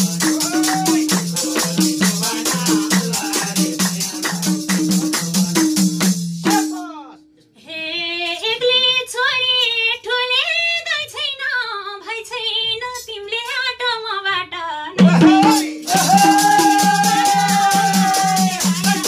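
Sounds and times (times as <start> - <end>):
people clapping: 0.0 - 5.7, 15.9 - 19.0
group singing: 0.0 - 6.8, 15.0 - 19.0
hand drum: 0.0 - 6.8, 15.0 - 19.0
tambourine: 0.0 - 6.8, 15.8 - 19.0
woman singing: 7.6 - 19.0.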